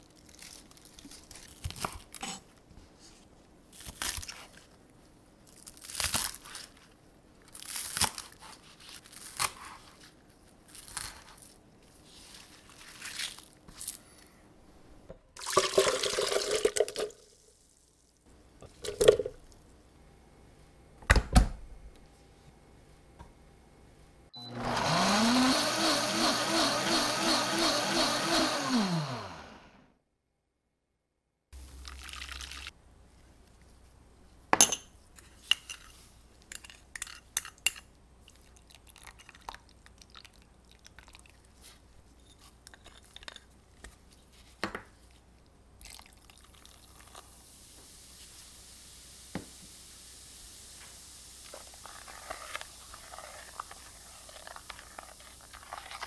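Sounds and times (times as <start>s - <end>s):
blender motor whining: 24.4s - 29.8s.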